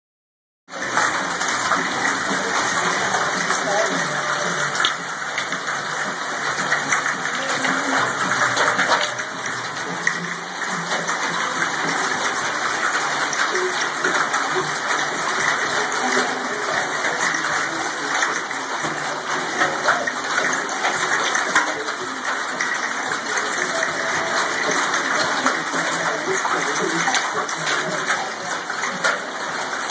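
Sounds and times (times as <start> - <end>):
hail and rain pelting metal bleachers: 0.7 - 29.9.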